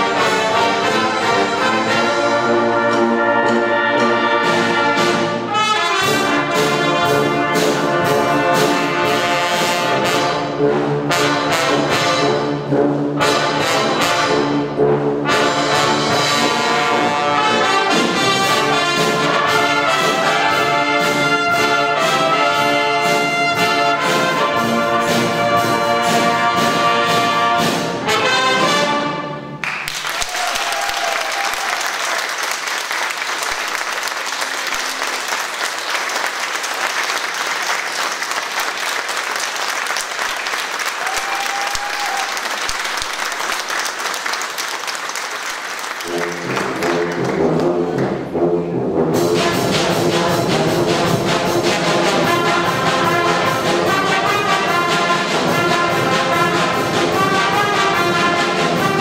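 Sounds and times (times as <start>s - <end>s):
brass band playing: 0.0s - 59.0s
audience applauding: 29.6s - 48.1s.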